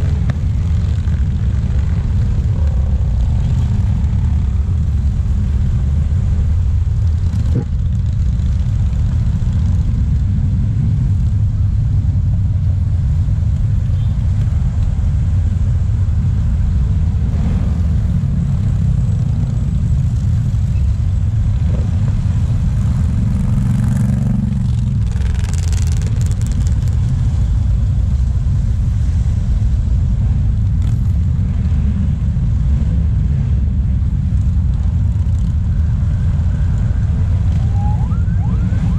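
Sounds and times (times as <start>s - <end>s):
car traffic: 0.0s - 38.9s
motorcycles riding past: 17.1s - 27.4s, 30.2s - 38.9s.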